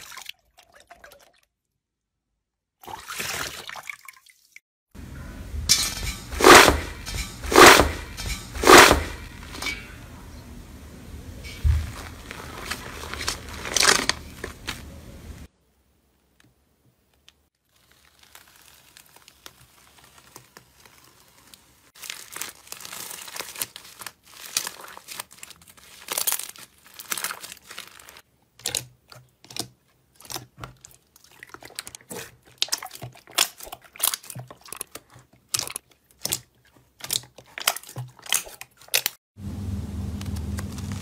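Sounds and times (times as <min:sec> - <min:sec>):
paper crinkling and crackling: 0:11.5 - 0:15.5, 0:17.1 - 0:28.9, 0:40.2 - 0:41.0.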